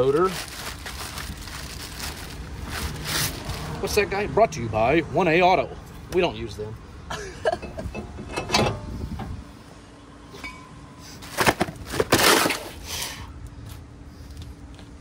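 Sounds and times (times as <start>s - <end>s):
metal parts and tools clanking: 7.5s - 9.3s, 10.4s - 12.7s.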